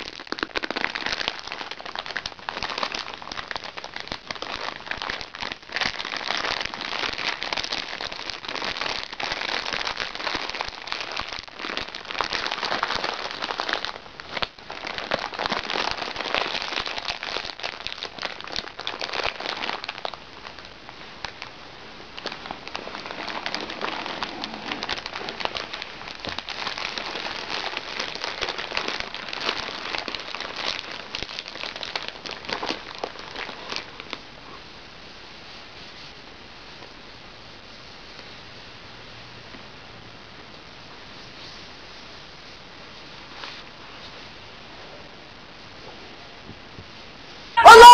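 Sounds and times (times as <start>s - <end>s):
plastic pouch crinkling: 0.0s - 21.5s, 22.2s - 34.2s.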